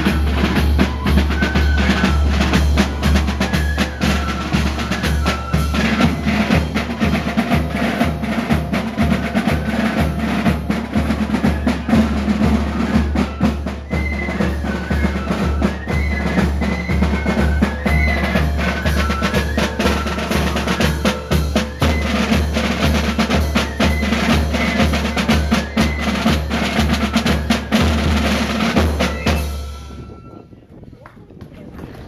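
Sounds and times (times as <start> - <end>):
snare drum rolls: 0.0 - 29.9
bass drums march beat: 0.0 - 30.2
high melody line: 0.0 - 30.5.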